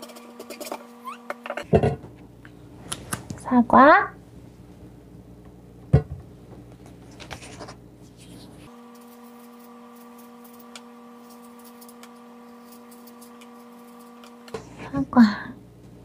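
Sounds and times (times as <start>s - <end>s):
steady multi-tone hum: 0.0s - 16.0s
knife cutting apple: 7.0s - 14.9s.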